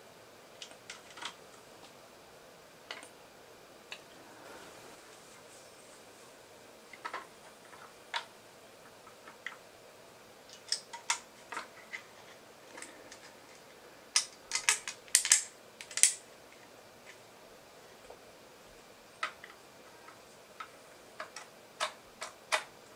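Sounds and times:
plastic parts clicking and tapping: 0.6 - 2.0, 6.9 - 9.6, 10.5 - 16.2, 19.2 - 22.7.

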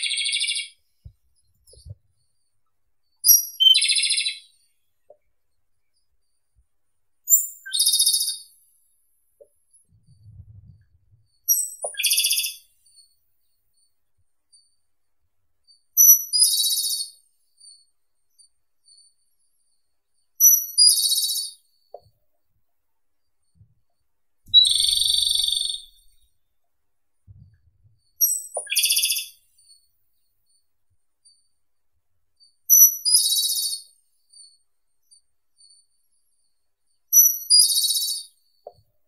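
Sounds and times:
bird singing high trills: 3.2 - 4.6, 7.3 - 8.5, 11.5 - 12.7, 24.5 - 26.2, 28.2 - 29.4, 32.7 - 33.9, 37.2 - 38.3.

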